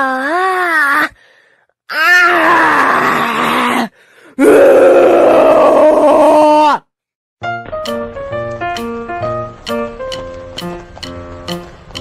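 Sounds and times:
person wailing: 0:00.0 - 0:01.2, 0:01.9 - 0:06.8.

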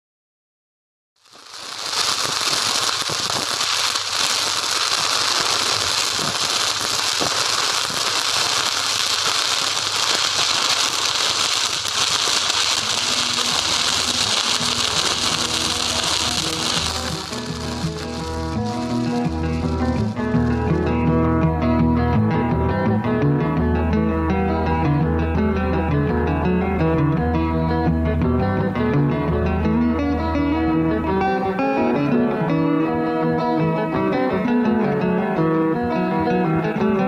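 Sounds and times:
welding arc crackling: 0:01.2 - 0:21.2
welding pops: 0:01.2 - 0:21.2.

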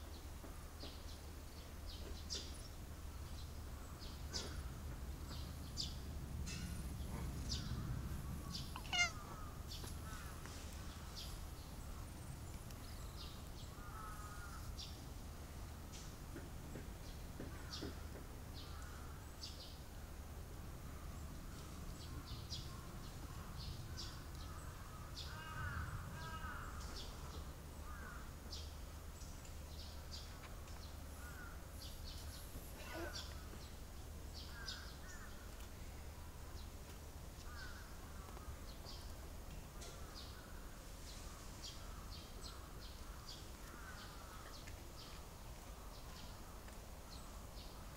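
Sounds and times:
birds chirping: 0:00.0 - 0:15.0
lower curving bird calls: 0:03.7 - 0:15.0.

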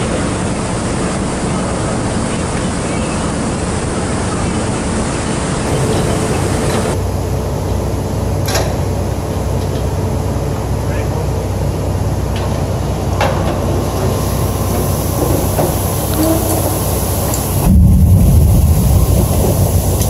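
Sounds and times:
plant machinery running: 0:05.4 - 0:07.3.

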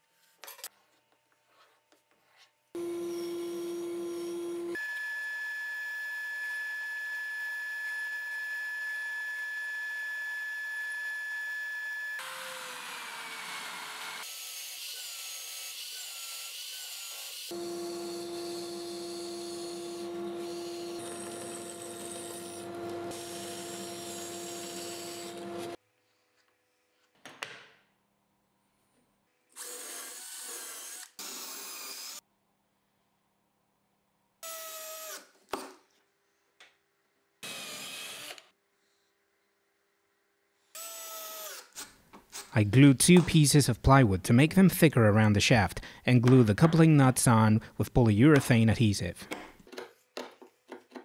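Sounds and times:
band saw cutting wood: 0:02.8 - 0:05.0, 0:06.4 - 0:25.8
cordless drill boring into wood: 0:12.2 - 0:25.8, 0:29.6 - 0:32.2, 0:37.4 - 0:38.5, 0:40.8 - 0:41.9
motor hum: 0:17.5 - 0:25.8.

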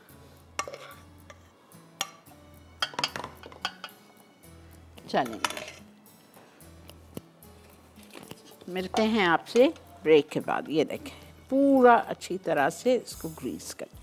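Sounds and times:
spoon scraping a pan: 0:00.5 - 0:04.1, 0:05.2 - 0:05.9
spoon clinking on metal: 0:02.8 - 0:04.0, 0:05.3 - 0:05.8.

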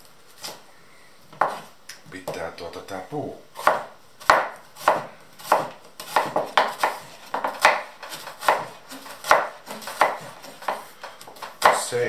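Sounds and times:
knife chopping on wooden board: 0:01.4 - 0:02.4, 0:03.6 - 0:11.9.

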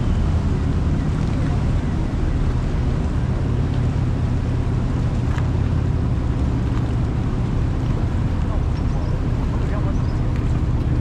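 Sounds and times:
ferry engine drone: 0:00.0 - 0:11.0
propeller wash churning water: 0:00.0 - 0:11.0.

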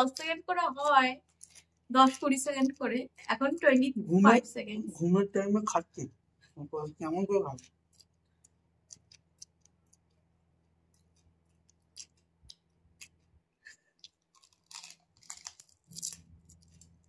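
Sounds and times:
chewing crunchy shells: 0:00.1 - 0:03.3, 0:07.5 - 0:17.0.

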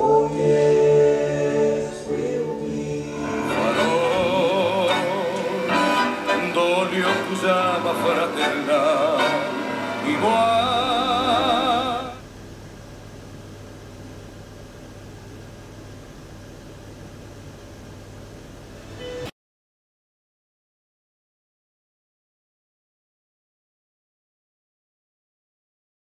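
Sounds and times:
singer with wide vibrato: 0:00.0 - 0:12.2
low hum: 0:00.0 - 0:19.3.

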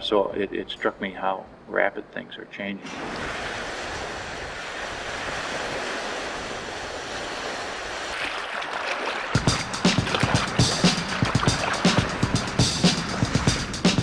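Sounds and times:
wind: 0:00.0 - 0:13.8
waves washing on rocky shore: 0:02.8 - 0:13.7
music beat: 0:09.4 - 0:14.0.

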